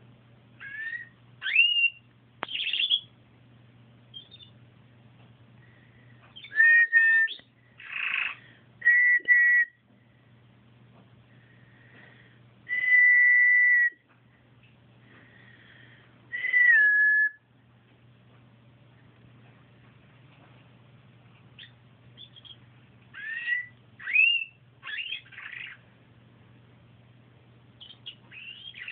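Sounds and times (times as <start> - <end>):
faint low hum: 0.0 - 28.9
canary singing: 0.6 - 3.2, 4.1 - 4.6, 6.2 - 9.8, 12.7 - 14.0, 16.3 - 17.5, 21.6 - 25.9, 27.7 - 28.9.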